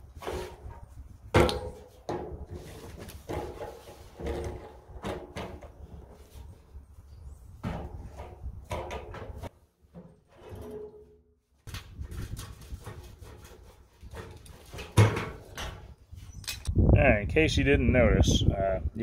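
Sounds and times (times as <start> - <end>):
hands scraping and knocking metal parts: 7.6 - 16.7.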